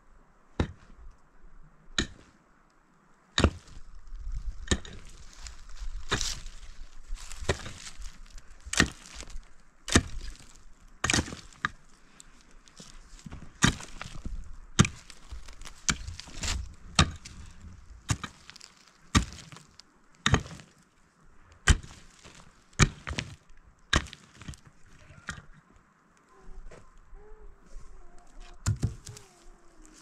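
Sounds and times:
pickaxe striking stony soil: 0:00.6 - 0:00.9, 0:02.0 - 0:02.3, 0:03.4 - 0:03.8, 0:04.6 - 0:05.3, 0:06.0 - 0:11.8, 0:12.7 - 0:20.8, 0:21.6 - 0:25.5.

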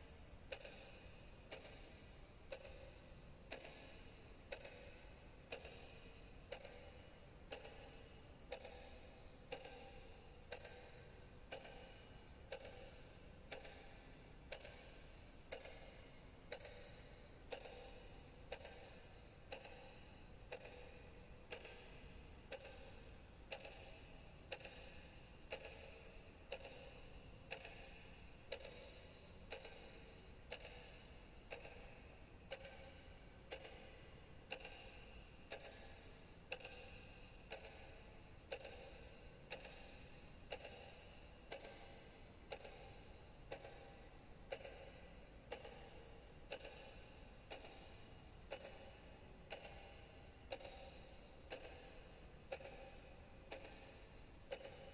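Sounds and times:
faint steady ticking: 0:00.0 - 0:54.9.

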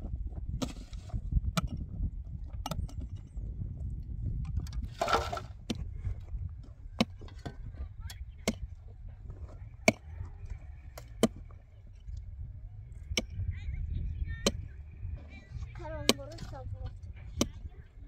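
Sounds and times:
low rumble: 0:00.0 - 0:18.0
pick striking stony earth: 0:00.5 - 0:01.9, 0:04.4 - 0:05.9, 0:07.0 - 0:07.7, 0:09.8 - 0:10.1
shovelful of soil rattling: 0:04.8 - 0:05.6.

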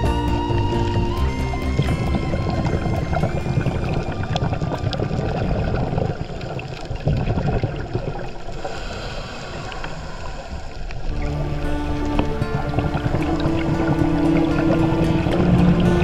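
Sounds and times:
faint music: 0:00.0 - 0:06.0, 0:11.1 - 0:16.0
bubbling and crackle: 0:00.0 - 0:16.0
underwater low rumble: 0:00.0 - 0:16.0.

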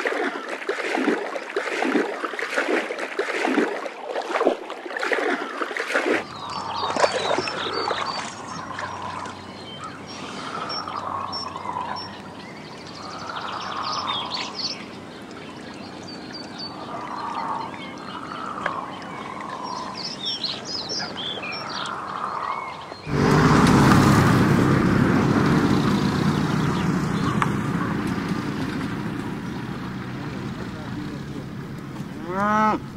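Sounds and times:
herd of cows moving: 0:06.2 - 0:21.8, 0:23.1 - 0:32.9
birds chirping and calling: 0:06.2 - 0:23.3, 0:24.8 - 0:32.9.

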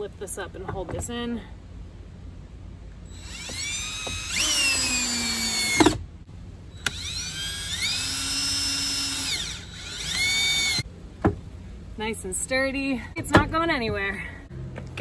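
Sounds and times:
drill clunk: 0:03.1 - 0:06.0
power drill whine: 0:03.1 - 0:06.0, 0:06.8 - 0:10.8.

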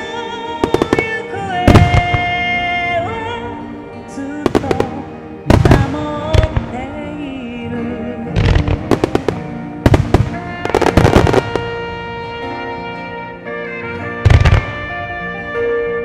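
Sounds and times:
hymn music over loudspeakers: 0:00.0 - 0:16.0
firework bangs and crackling: 0:00.6 - 0:02.5, 0:04.4 - 0:06.8, 0:08.4 - 0:12.1, 0:14.2 - 0:15.0.

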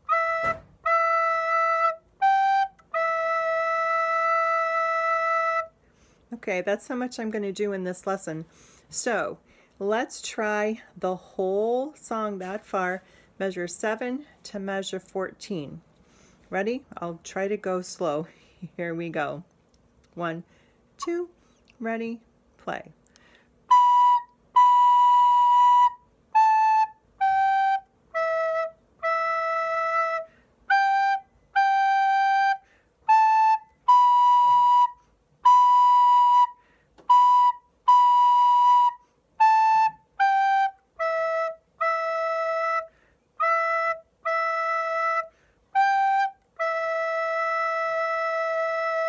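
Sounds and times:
soprano recorder melody: 0:00.0 - 0:05.8, 0:23.7 - 0:49.0.

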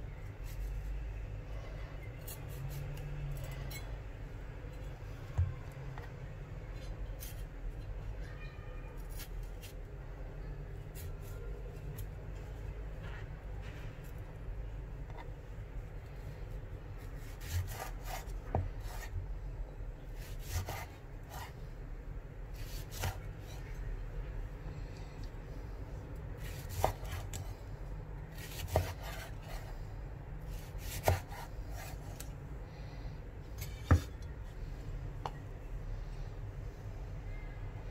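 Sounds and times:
knife slicing on chopping board: 0:17.1 - 0:19.2, 0:20.2 - 0:21.5, 0:22.6 - 0:23.3, 0:26.4 - 0:27.4, 0:28.3 - 0:29.7, 0:30.5 - 0:32.2.

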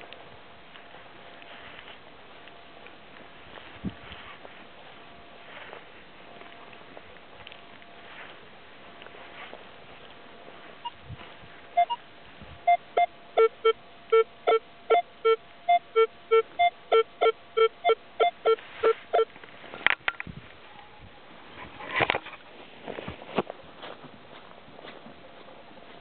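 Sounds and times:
metal detector beeping: 0:11.8 - 0:12.0, 0:12.6 - 0:19.3.

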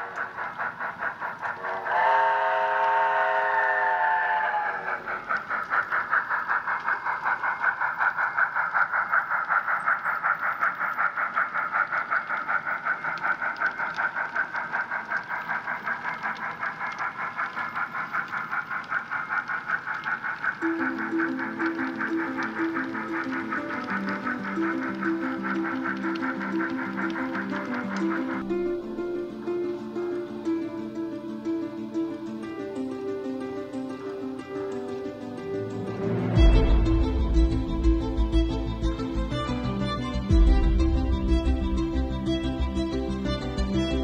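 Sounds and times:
locomotive exhaust chuffing: 0:00.0 - 0:30.6, 0:35.9 - 0:44.0
steam locomotive chime whistle: 0:01.6 - 0:05.1.

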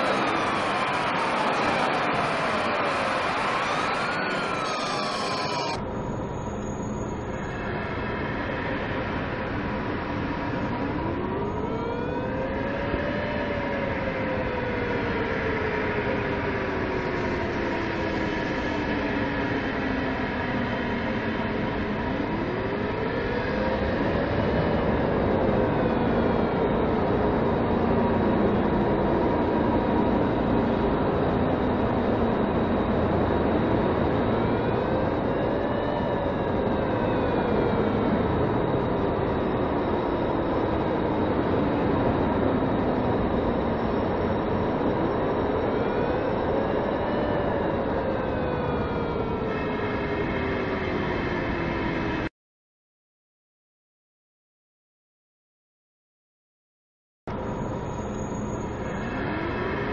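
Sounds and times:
siren-like wail: 0:00.0 - 0:52.3, 0:57.3 - 0:59.9.

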